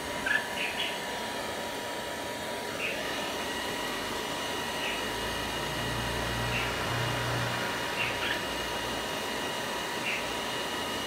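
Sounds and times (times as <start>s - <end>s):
steady whirring hiss: 0.0s - 11.0s
bird chirping: 0.3s - 1.0s, 8.0s - 8.4s.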